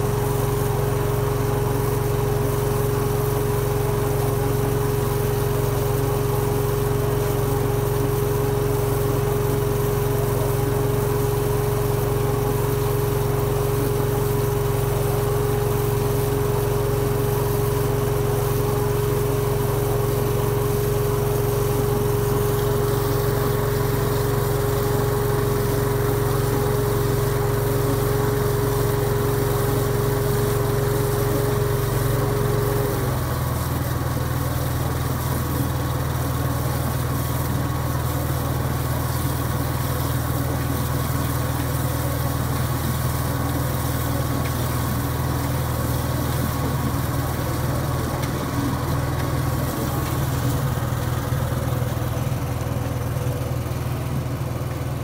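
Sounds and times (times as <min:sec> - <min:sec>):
dumper engine running: 0:00.0 - 0:55.0
steady whine: 0:44.2 - 0:54.2.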